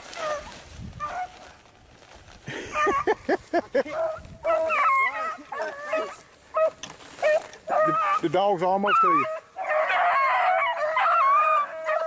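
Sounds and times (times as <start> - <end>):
dogs barking and yelping: 0.0 - 1.4, 2.6 - 12.0
dogs baying: 2.7 - 3.2, 3.8 - 12.0.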